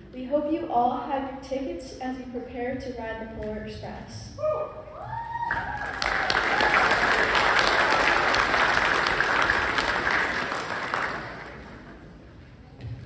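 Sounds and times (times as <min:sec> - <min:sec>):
audience applauding: 0:05.4 - 0:12.1.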